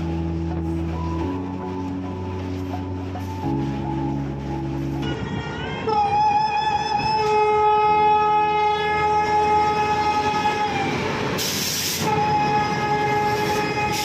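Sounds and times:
locomotive air horn: 0:03.4 - 0:14.0
brief air hiss: 0:11.4 - 0:12.2.

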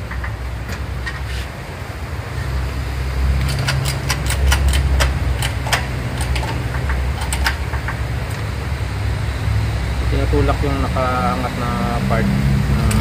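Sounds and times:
steady low hum: 0:00.0 - 0:13.0
sharp metallic clicks and taps: 0:03.4 - 0:08.4.

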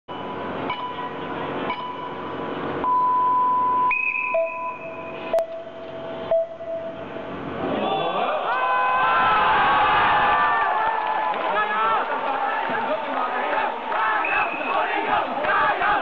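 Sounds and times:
electronic beeps and tones: 0:02.8 - 0:07.1
crowd hum: 0:06.9 - 0:16.0.

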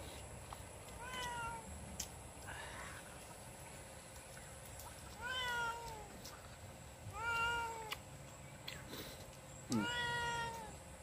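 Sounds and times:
cat meowing: 0:05.2 - 0:06.1, 0:07.1 - 0:08.0, 0:09.7 - 0:10.8.

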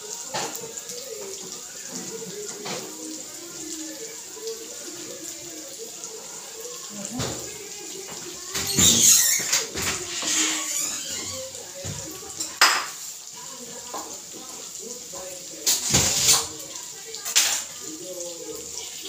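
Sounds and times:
tap running into sink: 0:00.2 - 0:03.2, 0:07.0 - 0:13.0, 0:15.1 - 0:17.6.

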